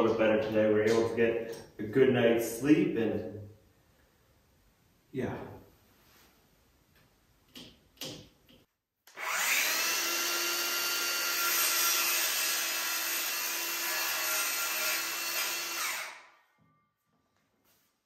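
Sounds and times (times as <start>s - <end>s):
power tool whining: 9.1s - 16.4s.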